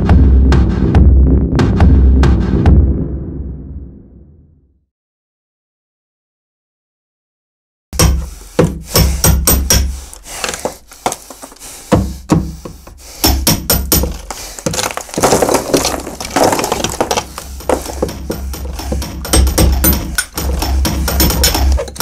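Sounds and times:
wooden knocks and cracks: 9.6 - 22.0.

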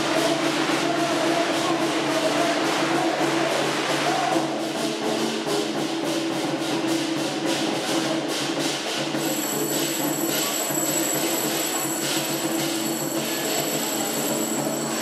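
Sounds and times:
rapid ringing strikes: 6.3 - 15.0
thin high steady tone: 9.3 - 15.0.

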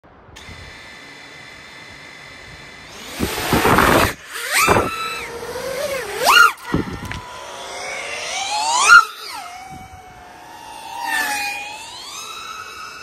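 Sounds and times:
drone motors whining: 0.1 - 13.0
drone propeller rush: 0.1 - 13.0.

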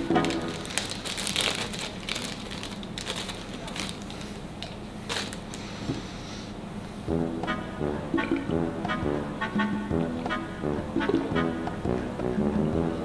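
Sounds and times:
plastic bag crinkling: 0.0 - 5.7
music with brass: 7.1 - 13.0.

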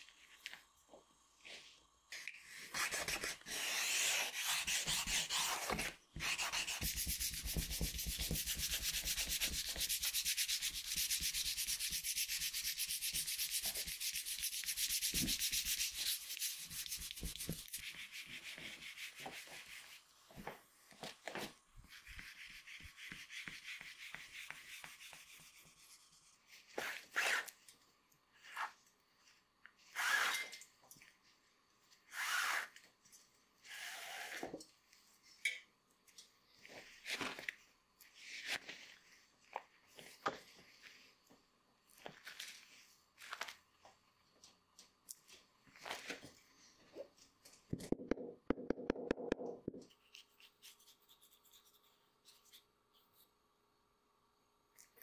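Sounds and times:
hand rubbing leather strip: 2.8 - 20.0.

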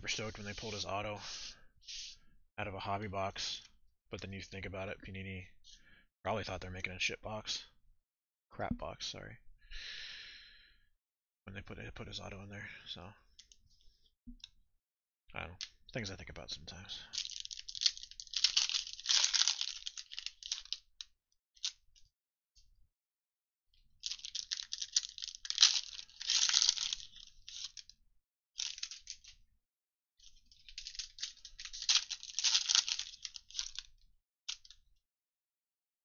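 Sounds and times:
wrappers tearing and crinkling: 17.2 - 20.8, 24.0 - 27.9, 28.6 - 29.3, 30.6 - 33.9.

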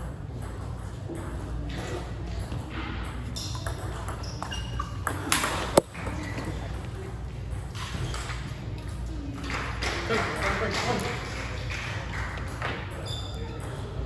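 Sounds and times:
low hum of hall: 0.0 - 14.0
high squeaks: 3.4 - 5.0
ping pong ball clicking: 3.4 - 6.0.

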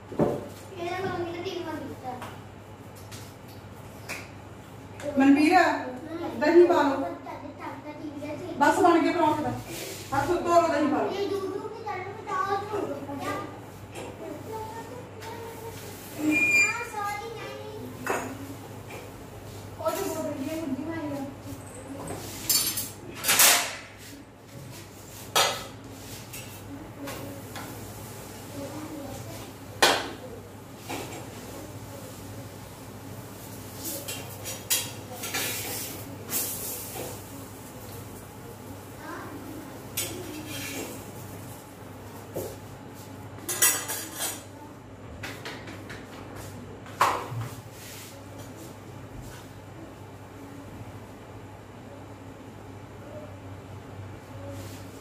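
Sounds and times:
steel dishes and utensils clinking: 22.4 - 23.8, 43.5 - 44.5
steel cookware clanking and scraping: 43.5 - 44.4.

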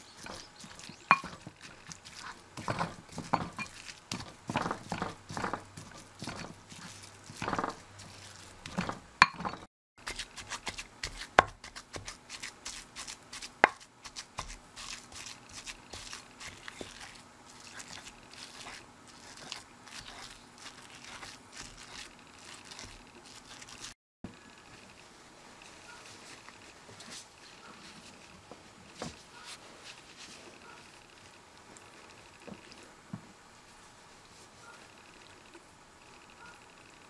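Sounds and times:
pestle grinding in ceramic bowl: 0.0 - 24.0.

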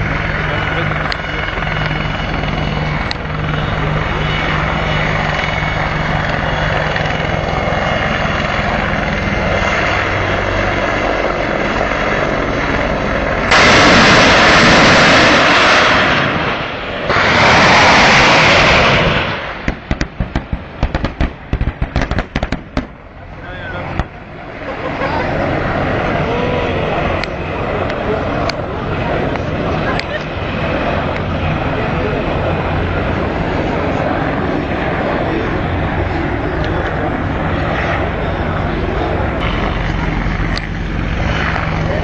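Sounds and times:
helicopter flying past: 0.0 - 42.0
loud rushing noises: 13.5 - 24.4
rapid sharp cracks: 19.6 - 22.9.

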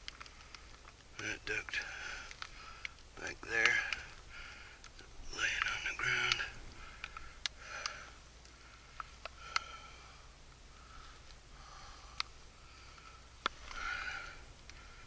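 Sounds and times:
sharp clicks: 0.0 - 9.7.

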